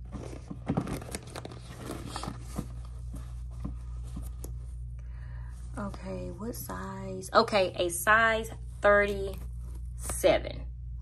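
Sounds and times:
shoe handled clicks and rustles: 0:00.0 - 0:04.6
steady low hum: 0:00.0 - 0:11.0.

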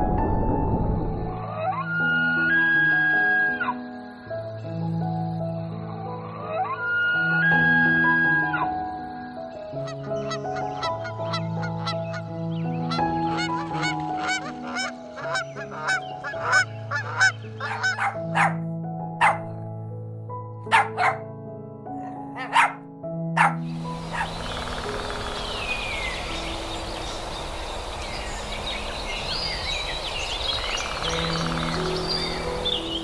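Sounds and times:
background music: 0:00.0 - 0:33.0
birds chirping: 0:01.6 - 0:18.6, 0:19.2 - 0:19.6, 0:23.4 - 0:33.0
dog barking: 0:17.6 - 0:18.6, 0:19.2 - 0:19.5, 0:20.7 - 0:21.2, 0:22.0 - 0:22.8, 0:23.4 - 0:24.3
outdoor hiss: 0:23.8 - 0:32.8.

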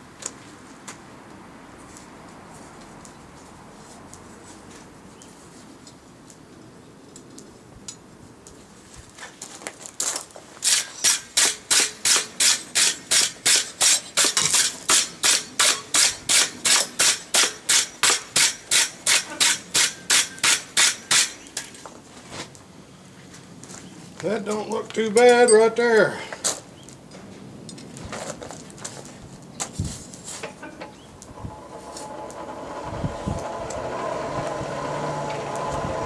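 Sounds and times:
wire brush rasping on steel: 0:10.6 - 0:21.5.

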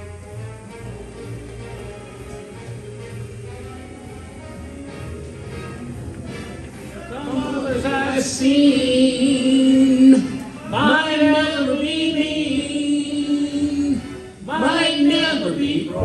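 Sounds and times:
person singing long held notes: 0:07.1 - 0:16.0.

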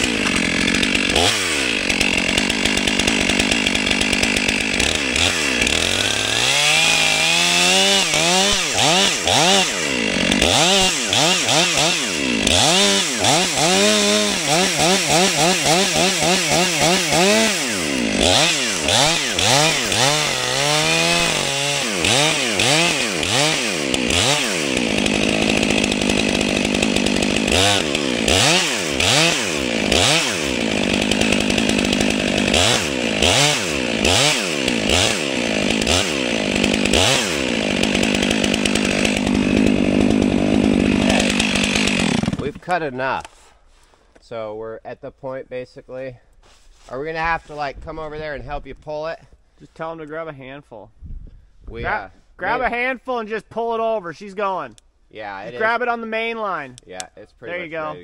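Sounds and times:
chainsaw cutting into tree trunk: 0:00.0 - 0:43.8.

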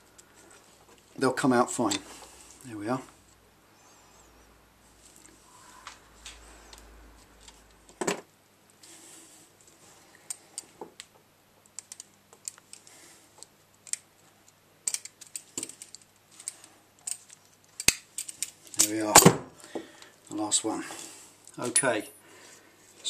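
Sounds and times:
light clicks and taps of tools: 0:10.2 - 0:19.0.

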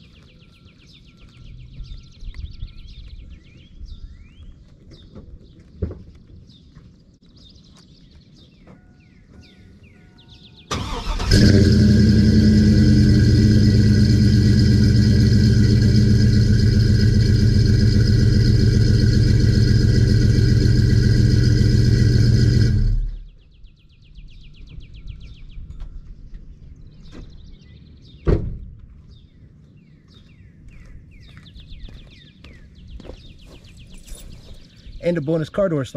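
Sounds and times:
pickup engine idling: 0:10.7 - 0:23.2
birds chirping faintly: 0:12.1 - 0:35.9.

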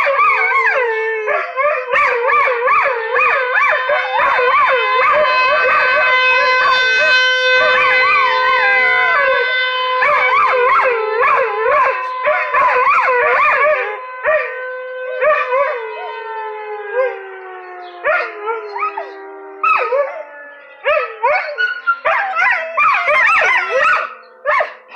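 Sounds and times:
dogs howling: 0:00.0 - 0:24.9
siren: 0:00.0 - 0:24.9
dogs yipping: 0:20.9 - 0:24.8.

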